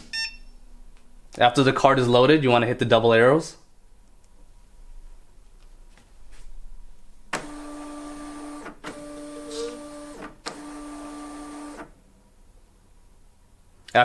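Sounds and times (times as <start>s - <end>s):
label printer feed motor running: 7.4s - 11.9s.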